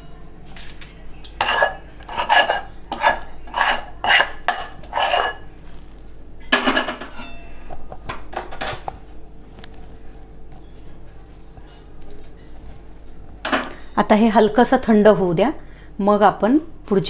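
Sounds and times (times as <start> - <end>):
spatula scraping metal pan: 1.4 - 5.6.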